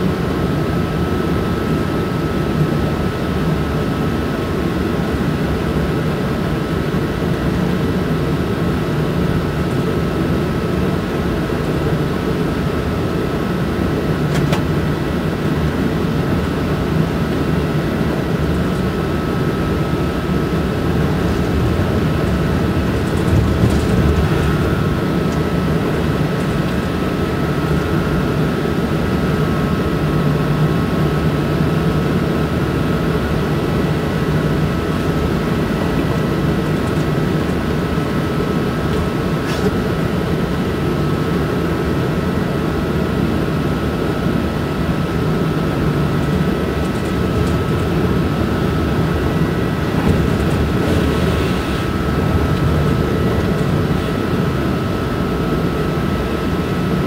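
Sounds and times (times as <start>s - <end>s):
train wheels rumbling on track: 18.1s - 28.3s, 45.5s - 54.8s.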